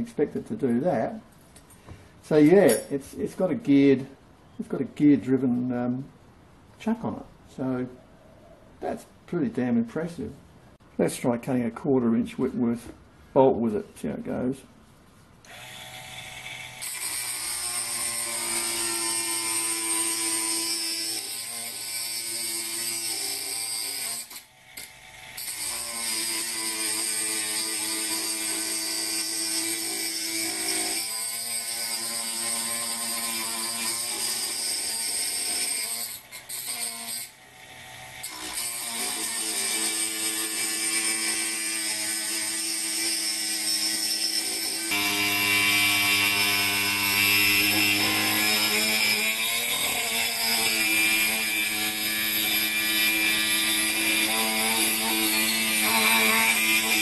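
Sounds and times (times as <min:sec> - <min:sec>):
rotary tool motor whine: 0:15.5 - 0:28.3
cut-off disc grinding steel: 0:15.5 - 0:57.0.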